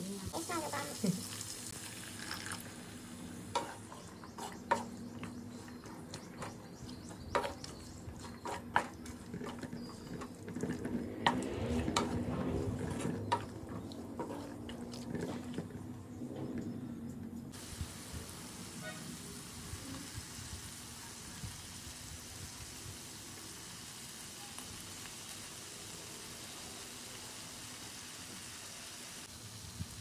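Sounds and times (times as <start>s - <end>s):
spatula stirring in frying pan: 3.1s - 15.9s.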